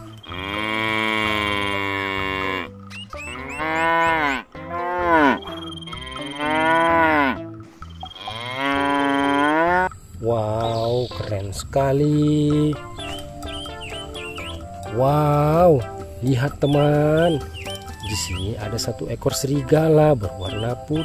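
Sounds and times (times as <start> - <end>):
water buffalo mooing: 0.0 - 10.6.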